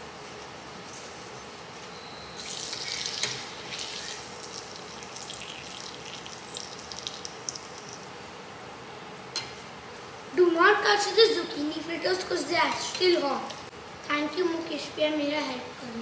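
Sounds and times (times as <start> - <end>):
hot oil sizzling and crackling: 2.4 - 8.3.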